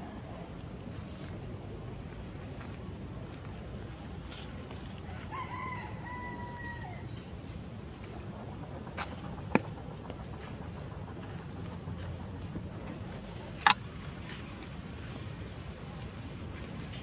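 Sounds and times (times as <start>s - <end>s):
rooster crowing: 5.0s - 7.1s.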